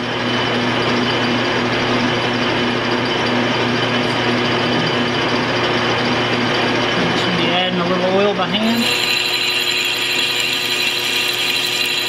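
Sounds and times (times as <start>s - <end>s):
lathe drive humming: 8.6s - 12.0s
lathe tool cutting steel: 8.6s - 12.0s.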